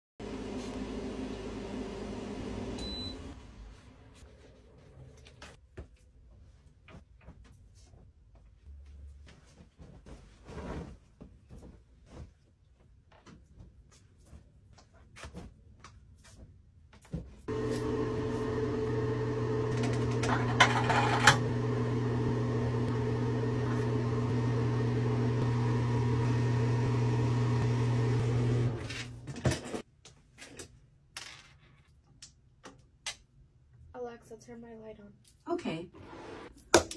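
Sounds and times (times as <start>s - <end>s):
mechanical hum with low drone: 17.5s - 29.8s.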